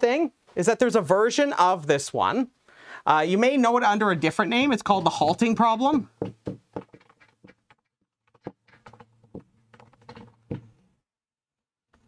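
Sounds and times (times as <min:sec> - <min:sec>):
pen writing taps and scratches: 0:06.2 - 0:10.8.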